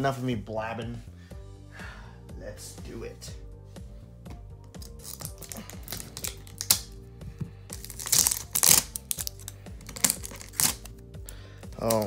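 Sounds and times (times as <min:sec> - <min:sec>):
background music: 0:00.0 - 0:12.0
shrink-wrap crinkling and tearing: 0:04.8 - 0:07.0, 0:07.7 - 0:11.0, 0:11.7 - 0:12.0.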